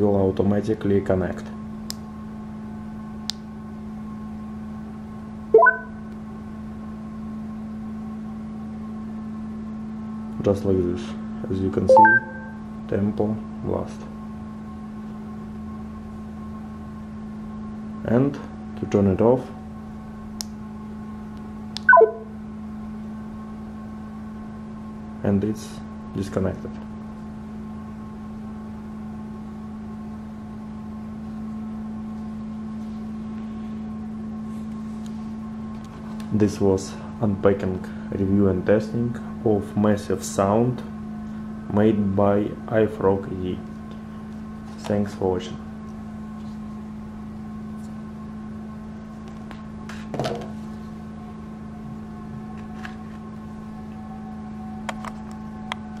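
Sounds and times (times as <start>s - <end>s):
room tone hum and hiss: 0.0s - 56.0s
faint higher tone: 5.6s - 6.0s, 11.9s - 12.6s, 21.9s - 22.3s
low steady drone: 11.9s - 12.7s
items set down on table: 50.1s - 50.6s.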